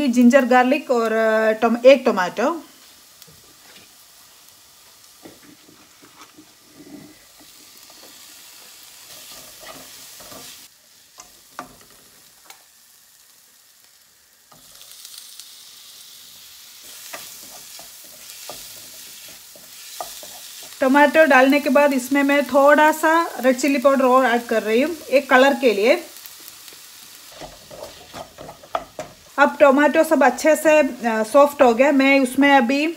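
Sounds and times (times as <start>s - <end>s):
onions sizzling in a frying pan: 0.0s - 32.9s
wooden spoon scraping a pan: 5.2s - 10.7s, 16.8s - 20.8s, 27.2s - 29.4s.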